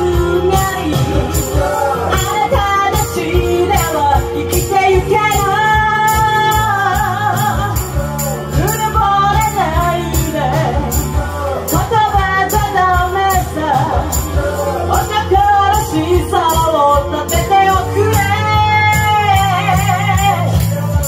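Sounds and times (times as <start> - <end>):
backing track drum beat: 0.0 - 21.0
woman singing rock song: 0.0 - 21.0.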